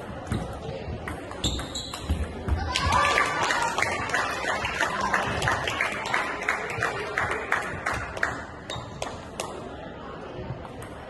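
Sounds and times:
people clapping: 0:02.7 - 0:09.5.

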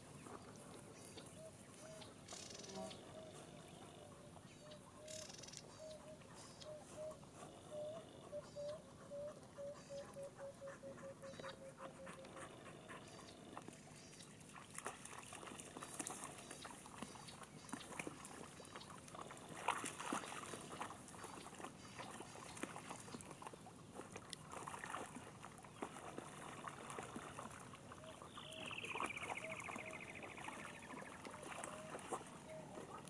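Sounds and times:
animals splashing through mud: 0:13.0 - 0:33.0.

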